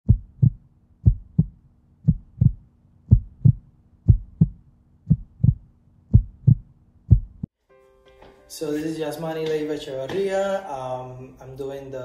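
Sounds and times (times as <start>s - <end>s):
heartbeat thumps: 0.0s - 7.5s.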